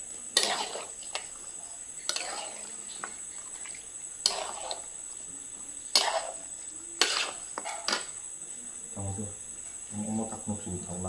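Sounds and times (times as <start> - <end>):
metal spatula scraping iron pan: 0.4 - 1.3, 2.0 - 2.8, 4.2 - 4.9, 5.9 - 8.1.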